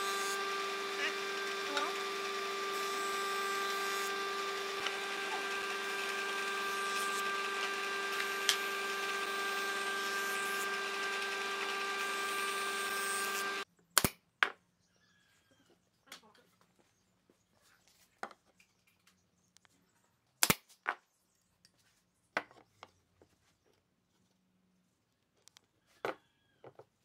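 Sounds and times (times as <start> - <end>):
jointer machine whining: 0.0 - 13.6.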